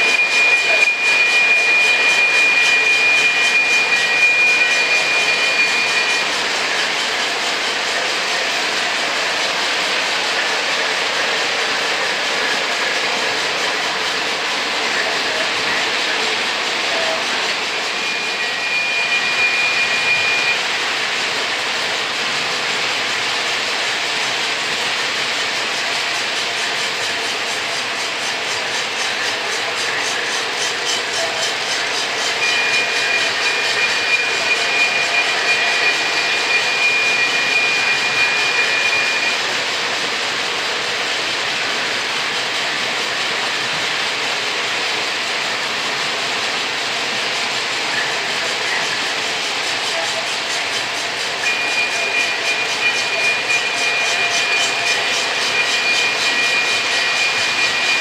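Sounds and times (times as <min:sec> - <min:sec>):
high steady tone: 0:00.0 - 0:09.2, 0:10.1 - 0:21.6, 0:31.0 - 0:40.2, 0:49.8 - 0:58.0.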